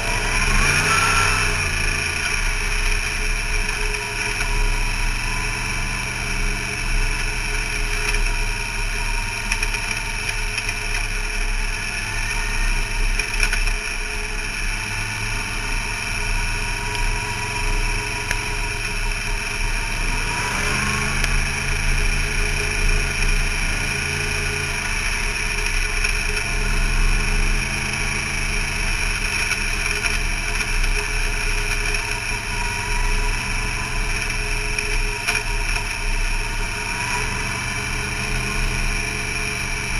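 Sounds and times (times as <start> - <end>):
race car engine running: 0.0 - 39.9.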